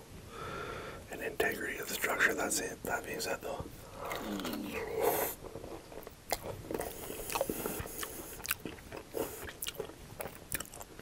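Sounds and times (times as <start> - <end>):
crunchy chewing: 4.0 - 11.0.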